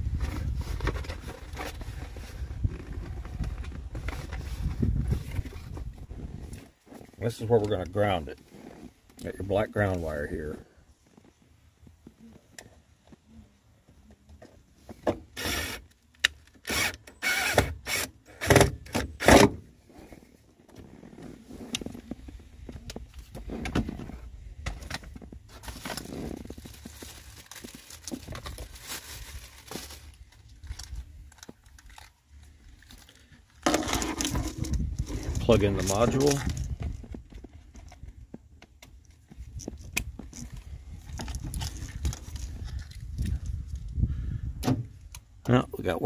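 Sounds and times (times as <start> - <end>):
wires scraping and rustling: 0.0 - 13.3, 19.9 - 38.4, 39.0 - 43.9
cordless drill driving screw: 15.4 - 15.9, 16.6 - 19.4.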